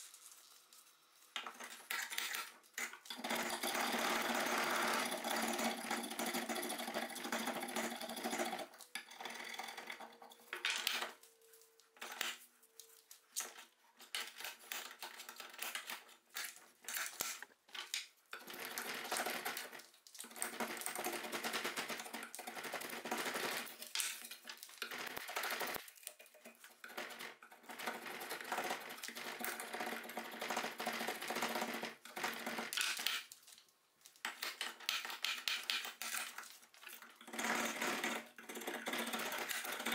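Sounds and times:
drawknife shaving wood: 0:14.2 - 0:17.5.

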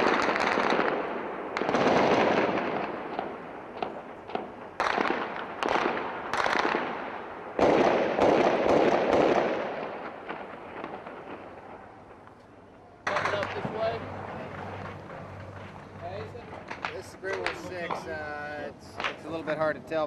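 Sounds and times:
distant gunfire volleys with echo: 0:00.0 - 0:12.2.

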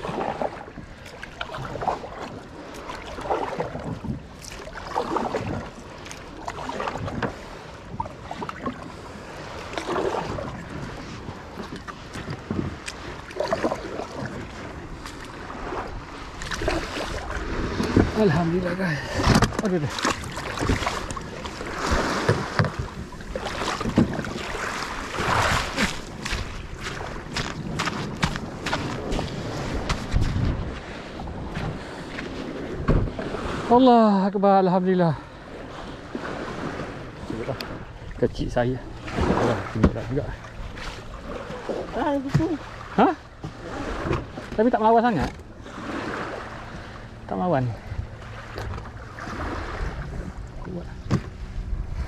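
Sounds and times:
water splashing around kayak: 0:00.0 - 0:52.0
wind buffeting microphone: 0:06.9 - 0:33.8
wind noise on microphone: 0:25.2 - 0:33.7.

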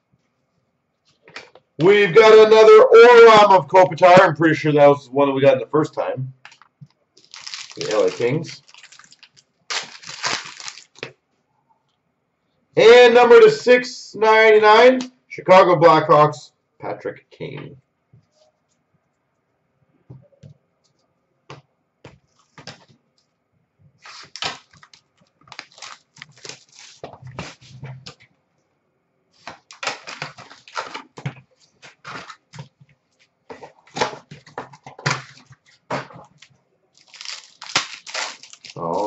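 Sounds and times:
wrapper crinkling and paper rustling: 0:06.5 - 0:11.1, 0:24.0 - 0:27.8, 0:29.4 - 0:32.6, 0:33.5 - 0:39.0.

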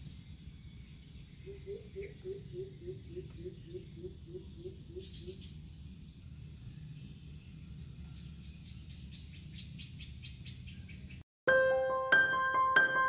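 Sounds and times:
piano music: 0:11.5 - 0:13.0.

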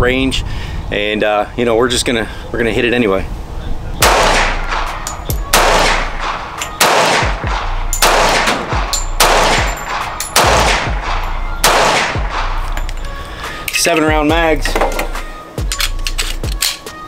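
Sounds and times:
loud pistol shots echoing: 0:04.0 - 0:12.6.

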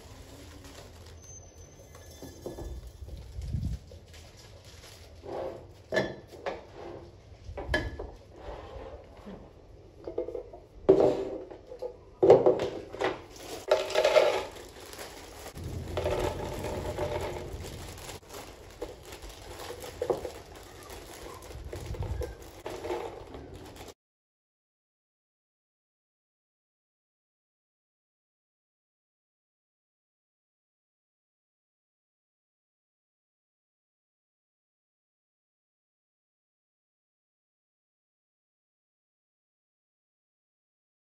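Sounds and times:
rustling: 0:00.0 - 0:05.9, 0:13.0 - 0:24.0
household items knocking and clinking: 0:12.2 - 0:24.0.

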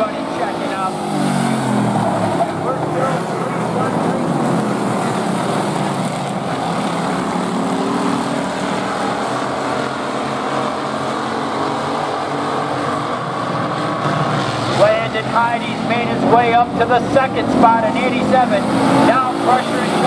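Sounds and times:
race car engines passing: 0:00.0 - 0:20.0.

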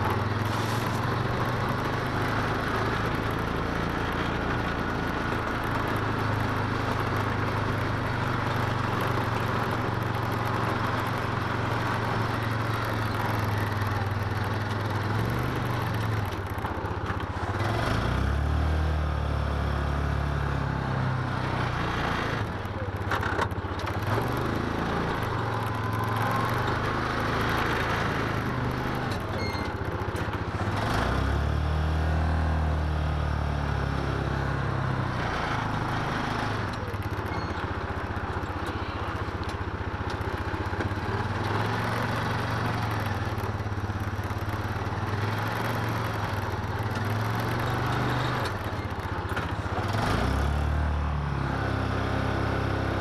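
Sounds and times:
engine revving: 0:17.5 - 0:22.5, 0:23.8 - 0:29.3, 0:30.5 - 0:37.1, 0:41.2 - 0:53.0.

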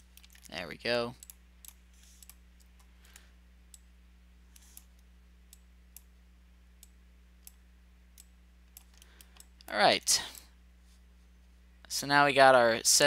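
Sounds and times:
low steady hum: 0:00.0 - 0:13.0
computer mouse clicks: 0:01.2 - 0:03.8, 0:04.5 - 0:06.1.

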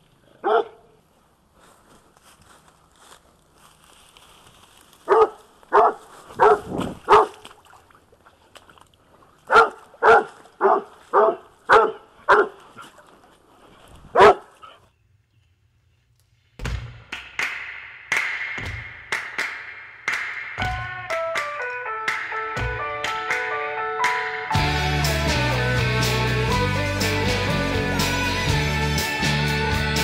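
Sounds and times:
dog barking: 0:00.4 - 0:01.0, 0:05.1 - 0:07.4, 0:09.5 - 0:12.6, 0:14.1 - 0:14.8
music: 0:20.1 - 0:30.0.

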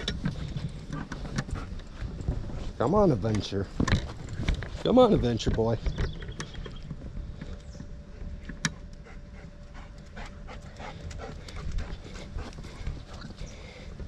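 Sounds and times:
dog panting: 0:00.0 - 0:02.2, 0:09.0 - 0:13.9.

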